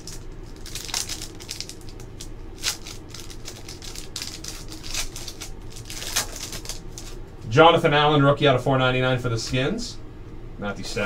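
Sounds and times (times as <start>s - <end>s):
cards being handled: 0.0s - 7.2s
foil wrapper crinkling: 0.0s - 7.2s.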